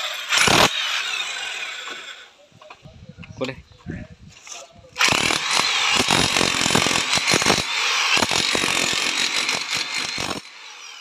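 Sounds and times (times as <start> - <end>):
demolition hammer chiselling brick: 5.0 - 10.6.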